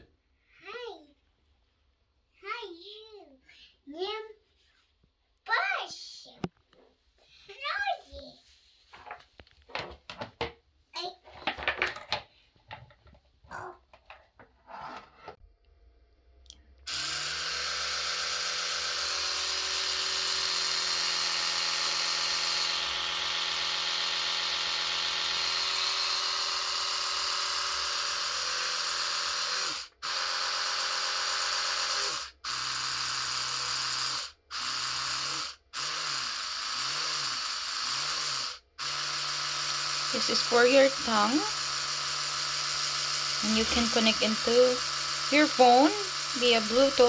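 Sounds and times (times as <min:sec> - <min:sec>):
electric toothbrush buzzing: 0:16.9 - 0:47.0.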